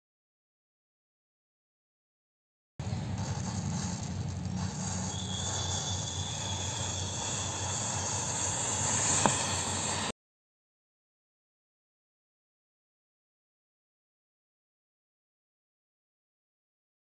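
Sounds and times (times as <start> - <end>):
matches burning with rushing hiss: 2.8 - 10.1
sharp crack: 2.8 - 10.1
thin high whistle: 4.6 - 10.1.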